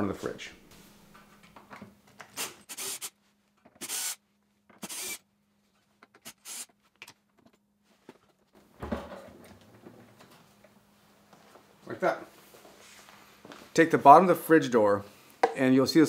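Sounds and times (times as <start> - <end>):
cordless drill running: 2.4 - 3.2, 3.8 - 4.2, 4.8 - 5.2, 6.2 - 6.7.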